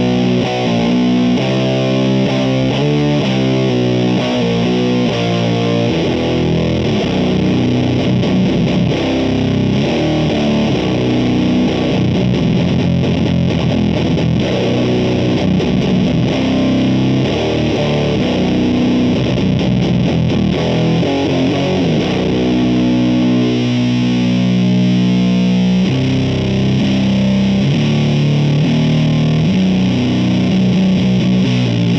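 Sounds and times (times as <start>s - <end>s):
fuzzed electric guitar riffs: 0.0s - 31.9s.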